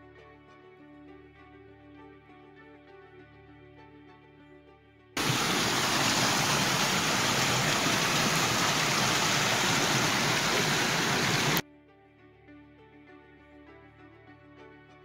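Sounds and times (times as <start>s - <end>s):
rushing water: 5.2s - 11.6s.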